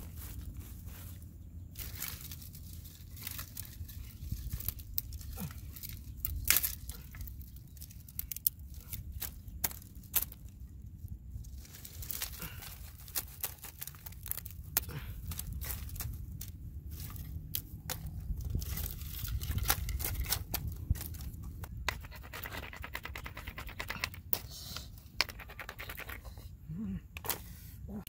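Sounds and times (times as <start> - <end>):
hands scraping through dry soil: 0.0 - 10.5, 11.4 - 26.6
dry sticks clicking and snapping: 3.1 - 10.6, 12.0 - 26.3.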